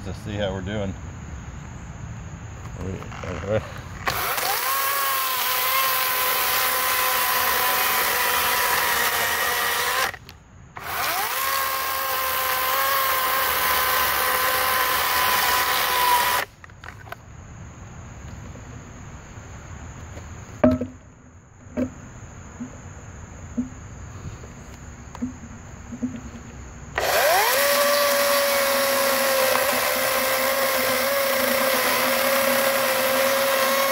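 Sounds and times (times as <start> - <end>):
electric chainsaw cutting log: 4.0 - 16.5, 26.9 - 33.9
sharp knocks: 20.6 - 21.0.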